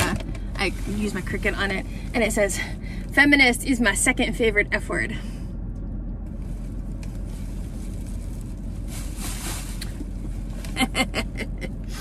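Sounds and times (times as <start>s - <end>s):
steady low rumble: 0.0s - 12.0s
woman laughing: 10.8s - 11.8s.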